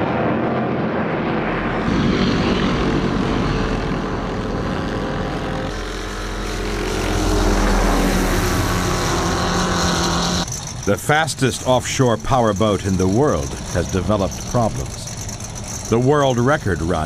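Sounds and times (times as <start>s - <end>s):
engine droning: 0.0s - 17.0s.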